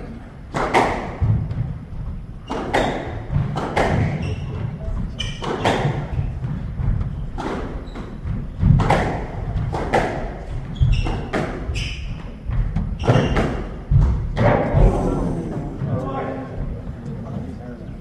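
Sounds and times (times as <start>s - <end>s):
squash ball hits: 0.5s - 1.8s, 2.4s - 14.9s
shoes squeaking on wooden floor: 4.0s - 8.6s, 10.4s - 14.1s.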